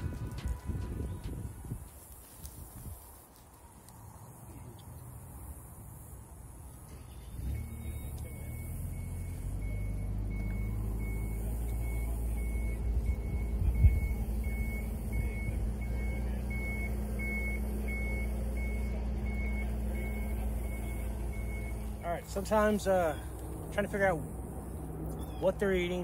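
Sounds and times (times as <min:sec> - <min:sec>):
engine humming: 0:00.0 - 0:26.0
reversing alarm beeping: 0:07.4 - 0:23.3.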